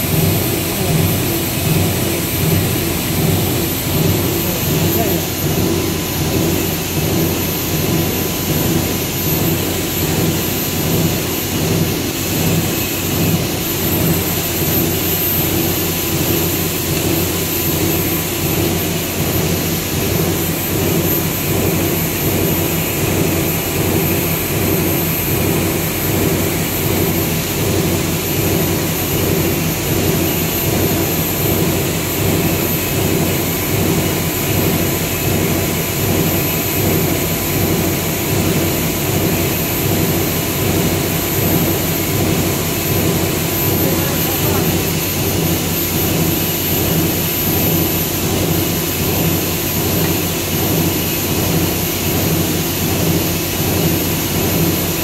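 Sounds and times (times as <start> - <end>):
machine roar with high whine: 0.0 - 55.0.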